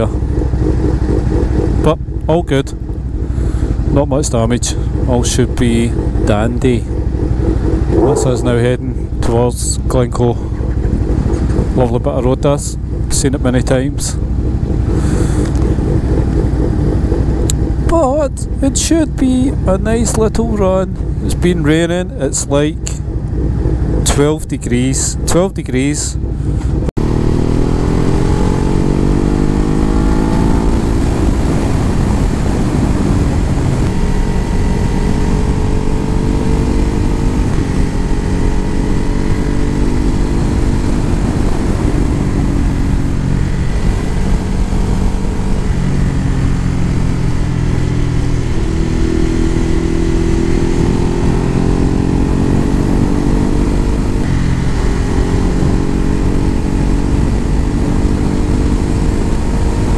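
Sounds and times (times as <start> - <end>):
constant rush of noise: 0.0 - 27.8
motorcycle engine accelerating: 0.0 - 59.9.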